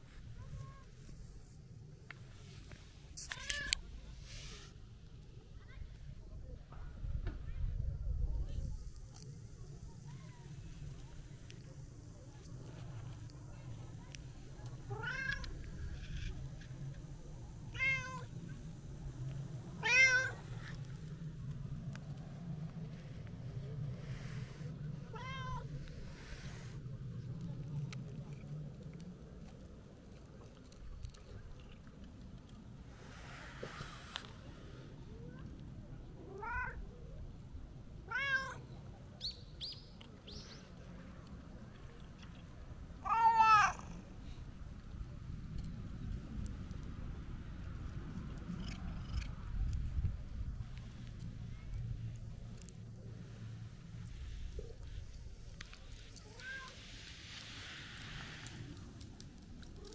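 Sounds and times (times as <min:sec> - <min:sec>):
cat meowing: 0:38.1 - 0:38.6, 0:43.0 - 0:44.0.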